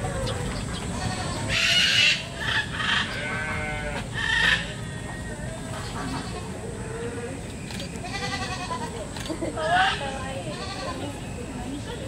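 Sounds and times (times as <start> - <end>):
goats bleating: 3.0 - 4.1, 8.0 - 8.9.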